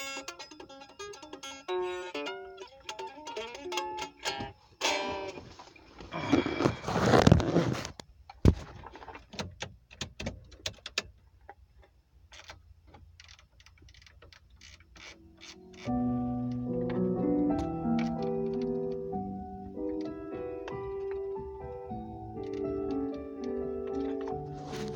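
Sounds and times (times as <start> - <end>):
acoustic guitar strumming: 0.0 - 5.5
phone handling rustle: 5.2 - 9.3, 22.4 - 24.9.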